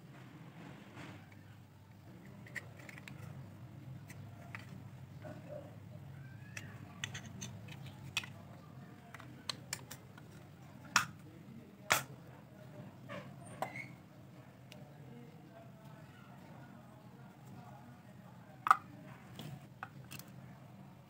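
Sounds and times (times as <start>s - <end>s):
small plastic clicks and scrapes: 2.1s - 4.9s, 6.4s - 11.2s, 18.7s - 20.4s
plastic case snapping shut: 11.9s - 12.1s.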